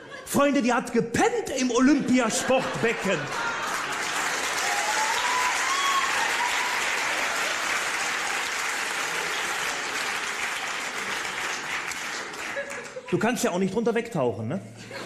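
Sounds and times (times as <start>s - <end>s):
audience laughing: 0.0s - 0.6s, 1.6s - 4.8s, 11.0s - 13.4s, 14.8s - 15.0s
audience applauding: 1.9s - 13.5s.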